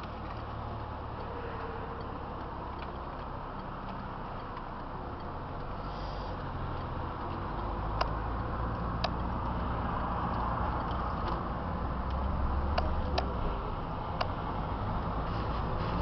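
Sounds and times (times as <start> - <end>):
sharp clicks: 0.0 - 11.4
car interior road and engine noise: 0.0 - 16.0.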